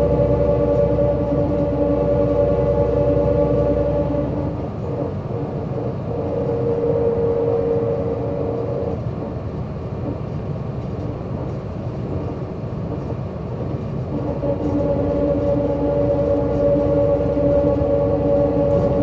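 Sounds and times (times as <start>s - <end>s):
steady pitched whine: 0.0s - 5.1s, 14.1s - 19.0s
bus engine rumble: 0.0s - 19.0s.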